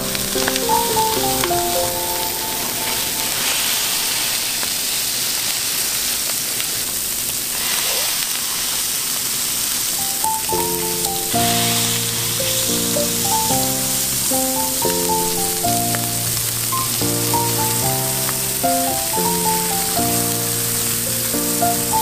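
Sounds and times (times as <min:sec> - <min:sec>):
background music: 0:00.0 - 0:04.0, 0:10.0 - 0:22.0
burger patties sizzling on griddle: 0:00.0 - 0:22.0.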